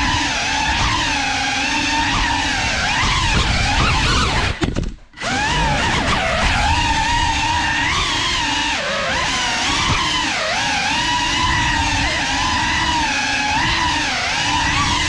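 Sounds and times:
drone motors whining: 0.0s - 15.0s.

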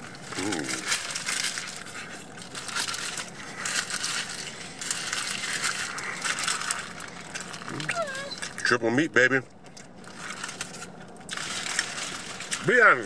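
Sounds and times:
biting into burgers: 0.0s - 8.7s
paper wrappers crinkling: 0.0s - 13.0s.

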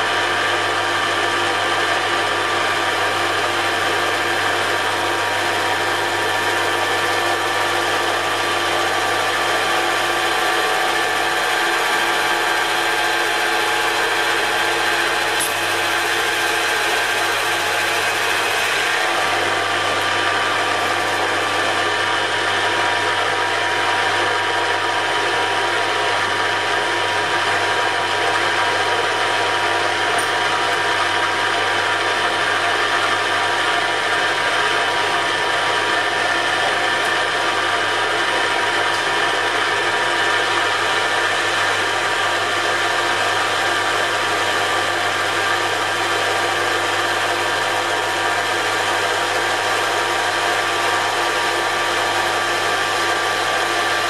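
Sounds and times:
metal lathe humming and whining: 0.0s - 54.0s
tool cutting steel: 3.3s - 23.1s, 30.0s - 31.4s.

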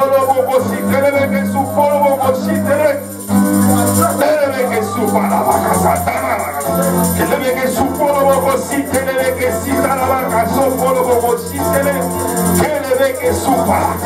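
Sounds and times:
praise music: 0.0s - 14.0s.

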